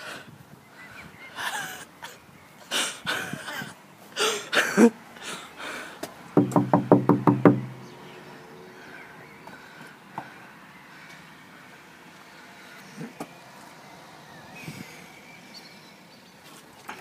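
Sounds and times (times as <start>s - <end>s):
rapid knocking on door: 6.4s - 7.8s.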